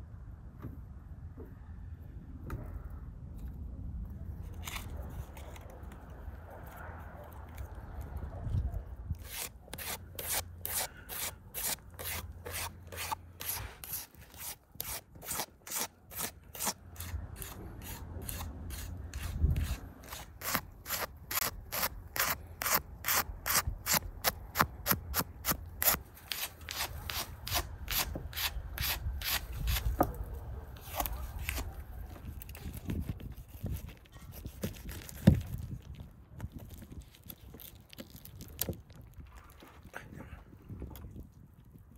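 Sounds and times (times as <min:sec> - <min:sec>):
knife scraping hide: 0:09.2 - 0:30.1, 0:30.8 - 0:35.5.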